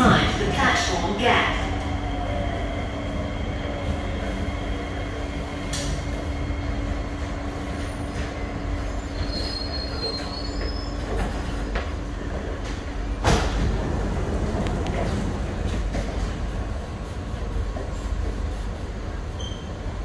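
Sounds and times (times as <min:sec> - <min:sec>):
train rumbling on rails: 0:00.0 - 0:20.0
wheels squealing: 0:09.0 - 0:11.4.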